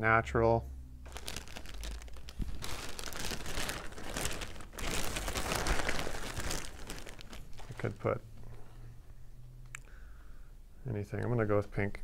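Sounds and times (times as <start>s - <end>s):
plastic bag crinkling: 1.0s - 8.2s.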